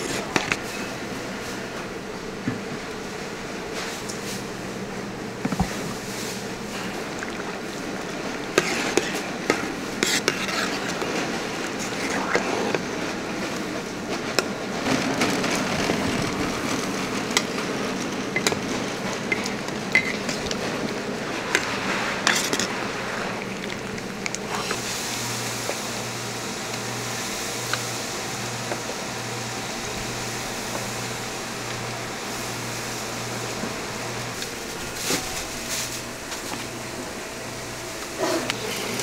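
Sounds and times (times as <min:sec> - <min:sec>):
metal ladle stirring and scraping pan: 0:08.5 - 0:12.1, 0:21.5 - 0:22.8
oil sizzling in deep fryer: 0:13.0 - 0:39.0.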